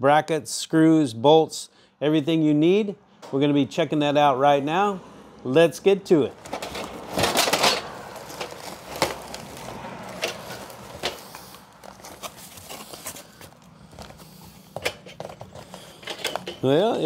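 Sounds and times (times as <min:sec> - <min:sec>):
cardboard flap rustling: 0:06.4 - 0:16.7
packing crinkling: 0:06.4 - 0:17.0.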